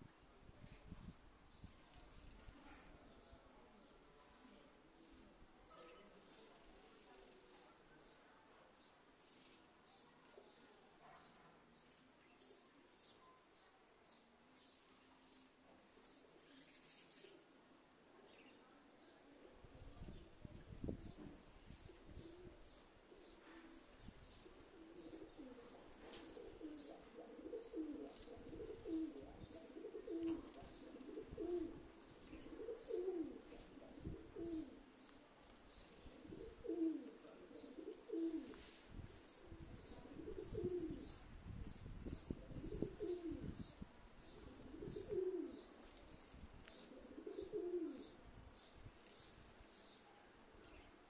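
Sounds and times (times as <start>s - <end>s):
small birds chirping: 0.7s - 17.5s, 18.2s - 51.0s
doves cooing: 24.4s - 35.0s, 35.9s - 38.7s, 39.4s - 41.2s, 42.4s - 45.8s, 46.6s - 48.2s.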